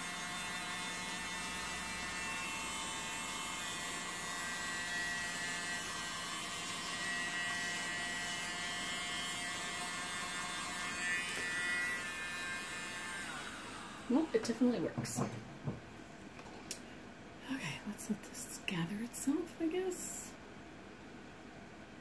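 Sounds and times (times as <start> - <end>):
electric blower whining: 0.0 - 15.8.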